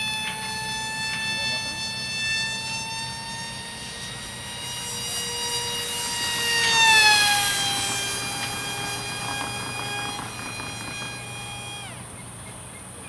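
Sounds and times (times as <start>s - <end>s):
model plane motor whining: 0.0s - 13.0s.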